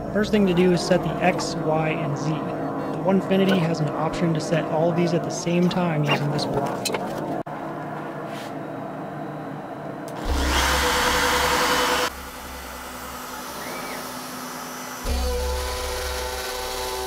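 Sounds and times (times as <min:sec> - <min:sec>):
power tool motor: 0:10.2 - 0:17.0.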